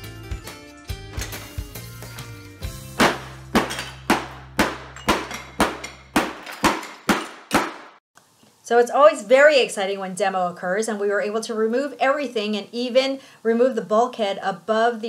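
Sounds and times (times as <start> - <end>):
percussive hits: 2.8 - 8.0.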